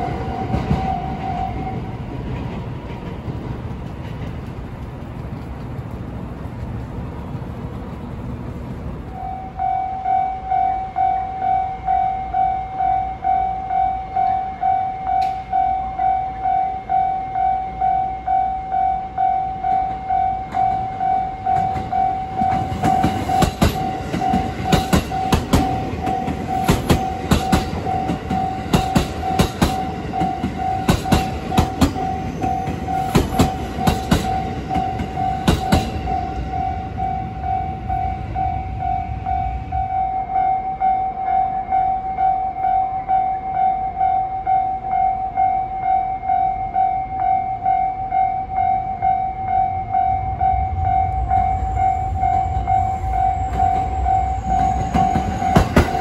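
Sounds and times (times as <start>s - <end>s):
level crossing warning bell: 0.0s - 2.2s, 9.2s - 56.0s
train wheels clacking over rail joints: 20.5s - 36.6s, 53.4s - 56.0s.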